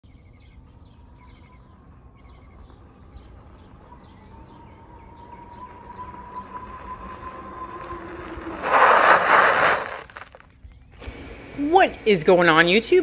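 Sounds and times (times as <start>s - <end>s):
small birds chirping: 0.0s - 6.7s
electric motor whine: 1.0s - 10.2s.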